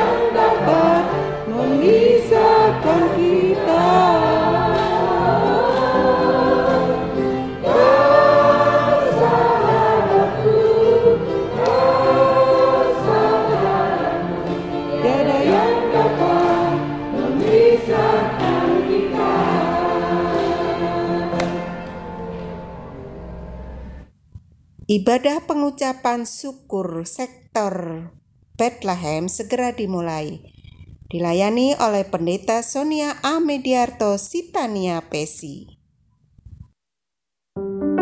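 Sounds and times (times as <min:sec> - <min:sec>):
congregation singing: 0:00.0 - 0:24.0
instrumental accompaniment: 0:00.0 - 0:24.1.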